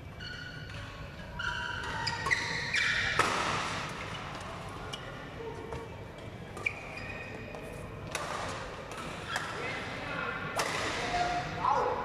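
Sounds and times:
shoes squeaking on floor: 1.4 - 3.2, 6.6 - 7.7
rackets hitting shuttlecock: 3.0 - 4.0, 7.5 - 9.6, 10.5 - 11.4.

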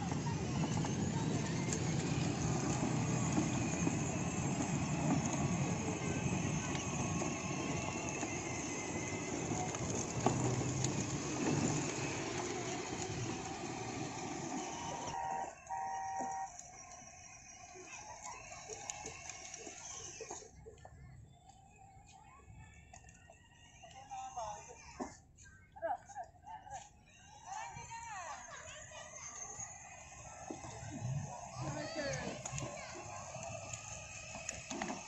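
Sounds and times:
electric motor hum: 0.0 - 20.3, 29.2 - 35.0
toy car wheels rumbling on concrete: 0.0 - 25.2, 27.1 - 35.0.

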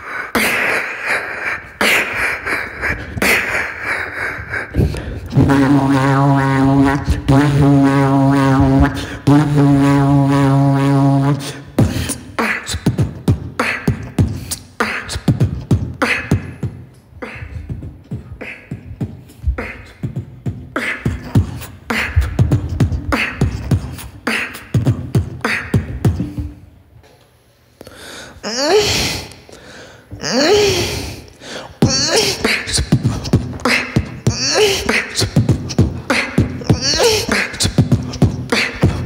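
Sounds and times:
held low vocal note: 2.1 - 12.1
beatboxed kick and snare: 11.8 - 26.6, 31.8 - 39.0.

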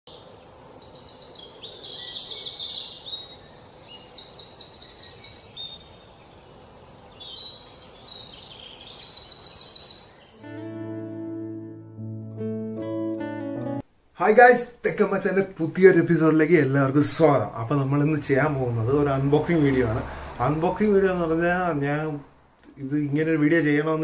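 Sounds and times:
birds chirping trills: 0.1 - 10.7
faint steady hiss: 0.1 - 10.7, 13.8 - 24.0.

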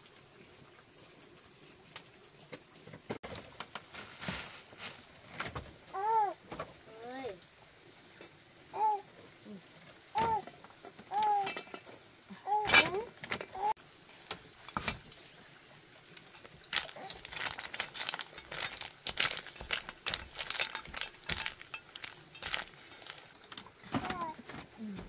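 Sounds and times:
rapid clicks and clattering: 16.4 - 23.8
high-pitched voice sounds: 23.9 - 25.0.

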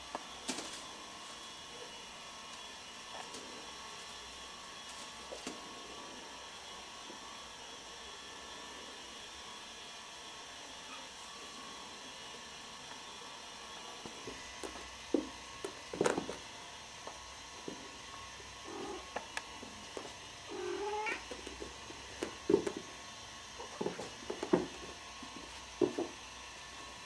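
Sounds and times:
kittens playing knocks and scuffles: 14.0 - 16.5, 21.0 - 23.0, 23.6 - 26.2
cats mewing: 20.4 - 21.5.

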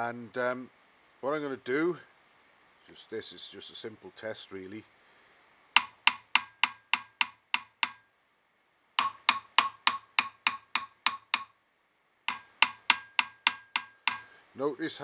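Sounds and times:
hammer tapping on metal: 5.8 - 8.0, 9.0 - 11.6, 12.3 - 14.3.

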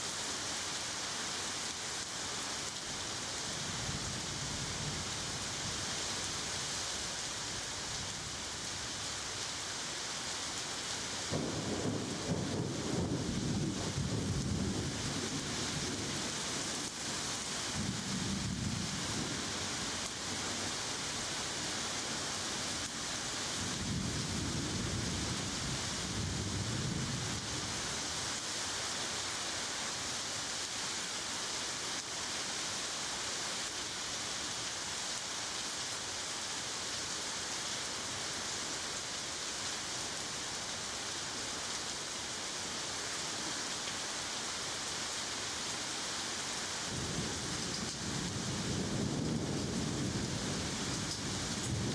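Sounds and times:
steady rain: 0.0 - 51.9
thunder rumbling: 11.3 - 15.0.

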